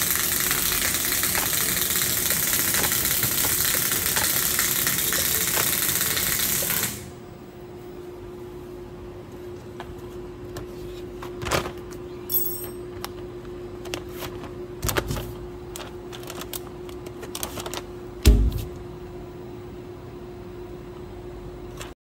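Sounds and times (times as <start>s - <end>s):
loud dull thump: 18.2s - 18.7s.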